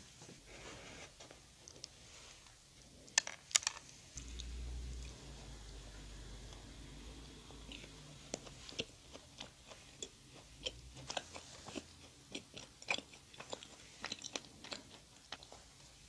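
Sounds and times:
person chewing: 4.2 - 16.0.

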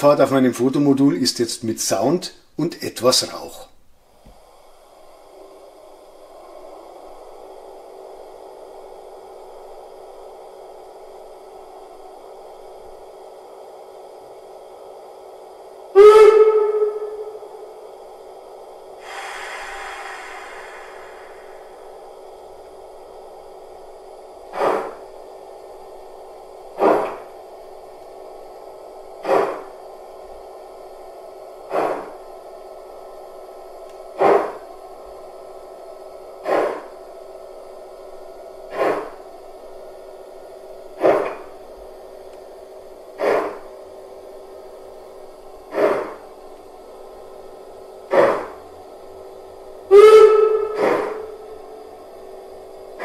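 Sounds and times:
steady hum: 0.0 - 53.0
steam exhaust chuff: 19.0 - 22.4, 24.4 - 25.2, 26.7 - 27.3, 29.2 - 29.8, 31.6 - 32.2, 34.1 - 34.7, 36.4 - 36.9, 38.7 - 39.2, 41.0 - 41.5, 43.2 - 43.7, 45.7 - 46.2, 48.0 - 48.6, 49.9 - 51.8.

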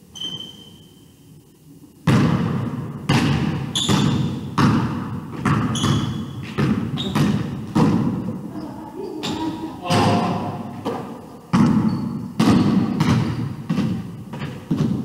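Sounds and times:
short high squeaks: 0.1 - 1.2, 5.7 - 6.4
basketball bouncing on hardwood: 2.1 - 8.2, 10.8 - 15.0.

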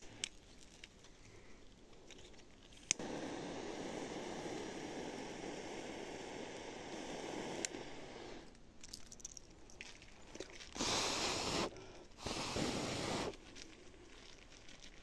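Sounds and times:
air rushing: 3.0 - 8.5
loud air gusts: 3.0 - 8.5.

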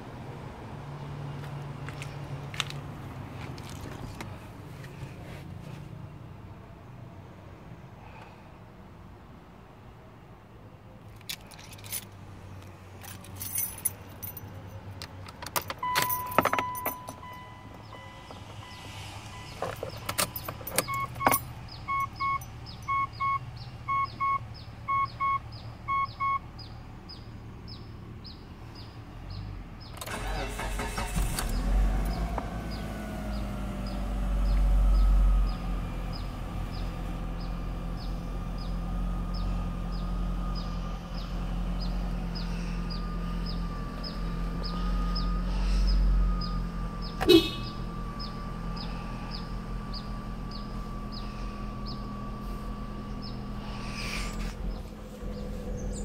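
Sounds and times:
dashboard chime beeping: 20.2 - 26.4
car starter cranking: 29.9 - 32.8
car engine fast idle: 30.0 - 34.6, 36.1 - 56.0.

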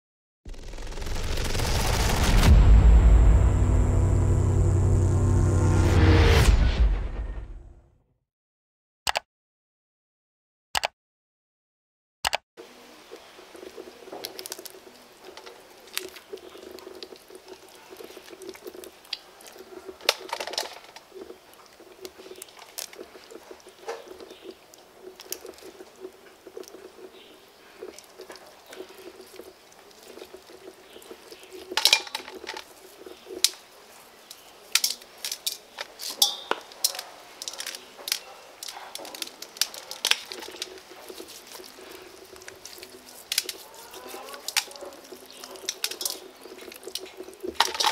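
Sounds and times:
sharp crackles and clicks: 0.5 - 7.5, 13.1 - 47.9
wet tearing and squelching meat: 14.2 - 20.4, 21.0 - 27.1, 27.8 - 47.9.

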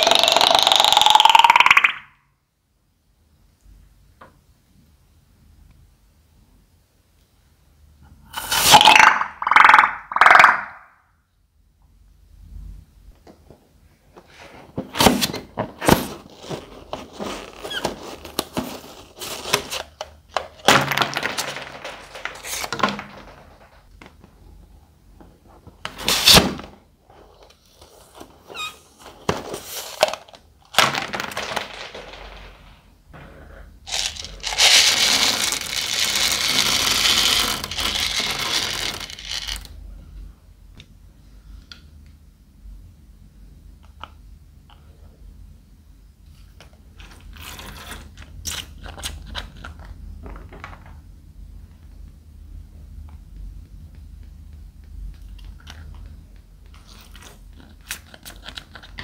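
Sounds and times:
beads pouring out: 33.9 - 39.7.

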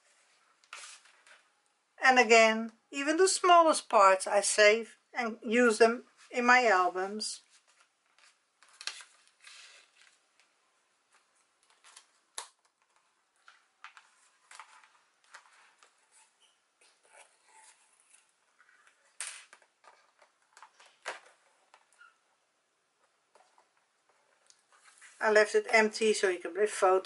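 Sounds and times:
paper rustling: 7.4 - 10.5.

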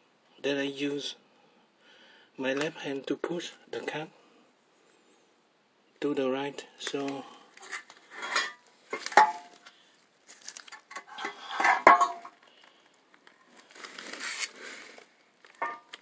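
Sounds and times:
metal scraping: 7.6 - 9.6, 10.9 - 12.3, 15.6 - 16.0
metal clanks: 8.2 - 9.5, 10.9 - 12.4, 15.6 - 16.0.

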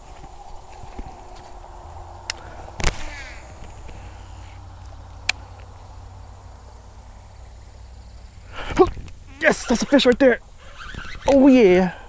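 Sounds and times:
wind rumble on microphone: 0.0 - 5.3, 8.6 - 9.3.

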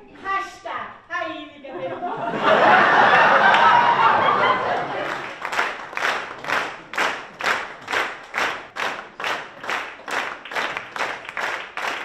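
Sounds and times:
audience clapping in rhythm: 2.4 - 12.0.

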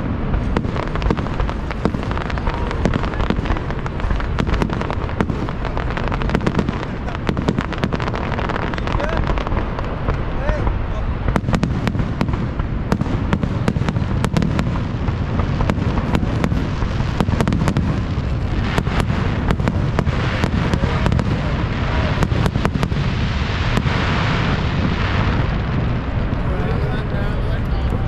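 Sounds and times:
fireworks bangs and crackles: 0.0 - 28.0
low rumble: 0.0 - 28.0.

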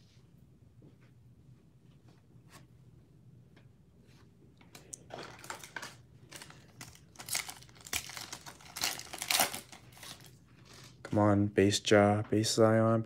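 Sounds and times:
foil wrapper crinkling: 5.1 - 11.0.

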